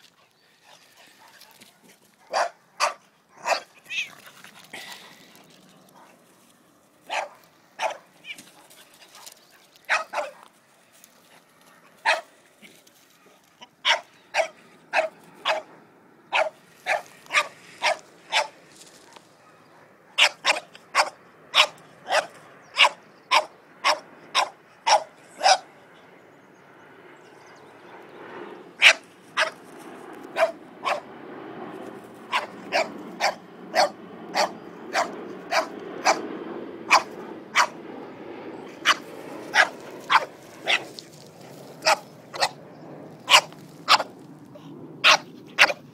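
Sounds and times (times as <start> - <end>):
dog barking: 2.2 - 3.7, 7.1 - 8.1, 9.9 - 10.5, 12.0 - 12.3, 13.8 - 15.7, 16.3 - 25.7, 28.8 - 29.6, 30.4 - 31.1, 32.3 - 36.3, 36.9 - 37.8, 38.8 - 40.9, 41.8 - 42.6, 43.3 - 44.1, 45.0 - 45.8.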